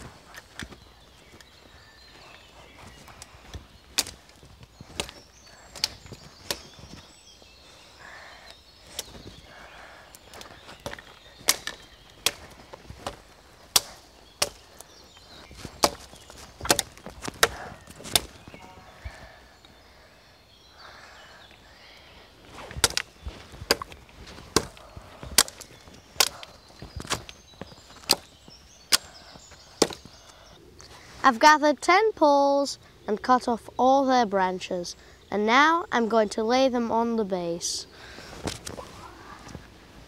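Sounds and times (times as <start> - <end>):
hatchet chopping wood: 4.0 - 4.2, 4.9 - 5.2, 10.8 - 14.7, 15.6 - 18.4, 22.8 - 27.2, 29.8 - 30.1.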